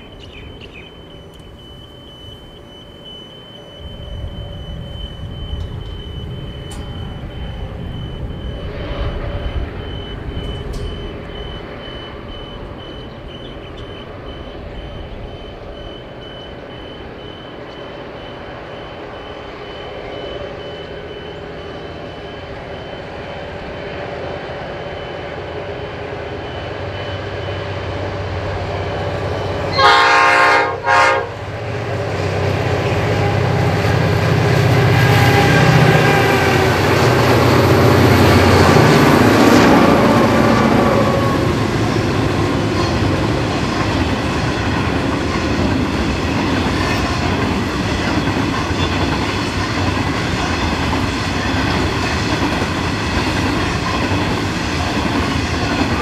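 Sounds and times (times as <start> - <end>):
thin high tone: 0.0 - 29.7
locomotive engine rumble: 0.0 - 56.0.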